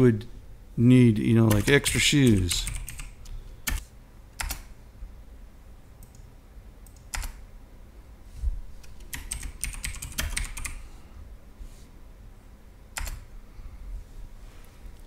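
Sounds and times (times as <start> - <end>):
keyboard typing: 1.5 - 3.8, 4.4 - 4.7, 6.9 - 7.4, 8.8 - 10.8, 13.0 - 13.3.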